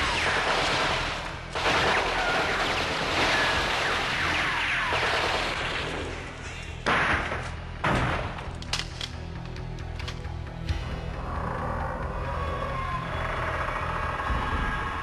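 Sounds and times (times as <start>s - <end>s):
machine-gun fire: 0.0s - 6.1s.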